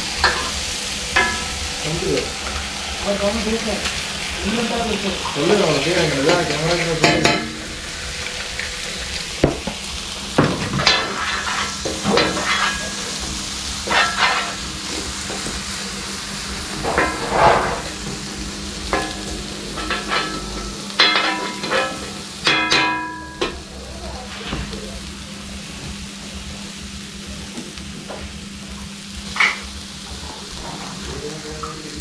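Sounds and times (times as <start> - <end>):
roti sizzling on a griddle: 0.0 - 32.0
metal blades clanking on griddle: 0.1 - 8.5, 9.4 - 15.8, 16.4 - 23.7, 29.3 - 31.8.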